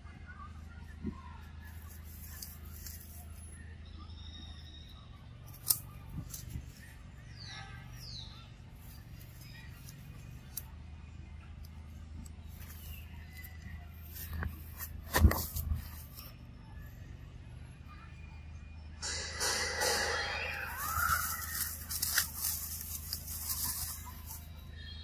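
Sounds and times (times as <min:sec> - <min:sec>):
steady low hum: 0:00.0 - 0:25.0
rustling dry leaves: 0:01.7 - 0:03.4, 0:05.4 - 0:10.7, 0:12.5 - 0:16.4, 0:19.4 - 0:25.0
monkey squeaks gliding downward: 0:20.1 - 0:24.9.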